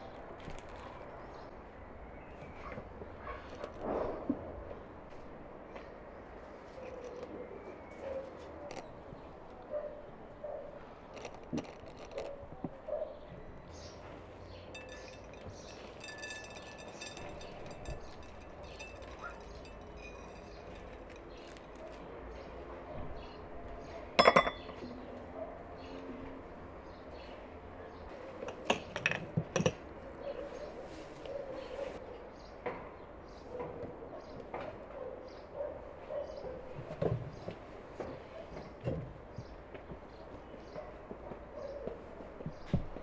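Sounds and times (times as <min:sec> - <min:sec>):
glasses clinking: 0:14.6 - 0:21.6, 0:24.2 - 0:24.8
glass tapping on table: 0:24.2 - 0:24.8.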